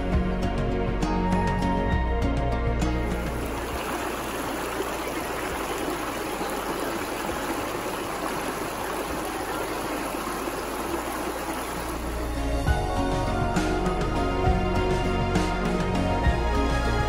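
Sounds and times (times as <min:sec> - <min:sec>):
music: 0:00.0 - 0:06.5, 0:11.7 - 0:17.0
stream rushing over rocks: 0:03.1 - 0:12.7.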